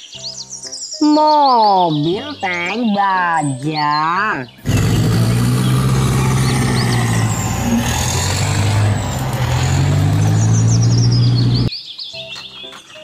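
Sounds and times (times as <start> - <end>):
heavy diesel engine drone: 4.6 - 11.7.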